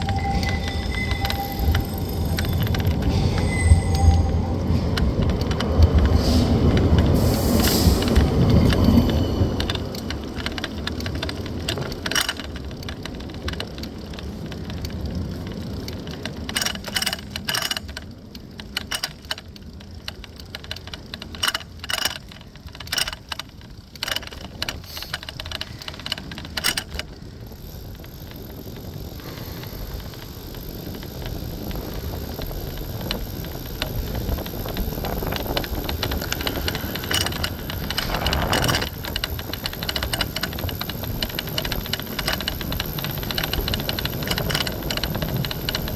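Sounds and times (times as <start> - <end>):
sharp rattling clicks: 0.0 - 4.1, 4.8 - 45.9
air rush: 0.0 - 8.5
bike low rumble: 0.0 - 45.9.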